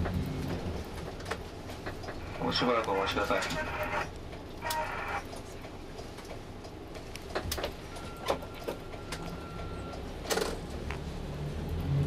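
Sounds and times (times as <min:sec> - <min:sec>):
clicks and rattles in cabin: 0:00.0 - 0:11.0
coach diesel engine rumble: 0:00.0 - 0:12.0
faint high beep: 0:07.9 - 0:10.0.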